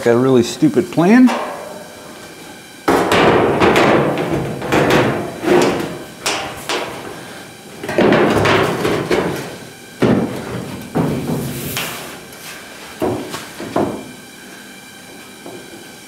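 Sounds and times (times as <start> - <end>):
sheet-metal knocks with rattle: 1.3 - 7.2, 7.8 - 12.0, 13.0 - 14.1.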